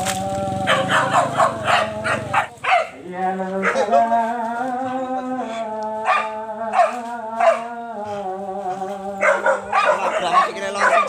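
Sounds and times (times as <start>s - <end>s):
young dog barking: 0.6s - 3.0s, 3.6s - 4.1s, 6.0s - 7.7s, 9.2s - 11.0s.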